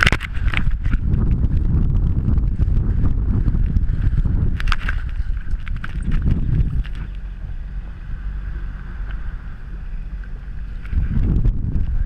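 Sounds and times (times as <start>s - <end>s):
jet ski engine hum: 0.0s - 12.0s
wind rumbling on microphone: 0.0s - 12.0s.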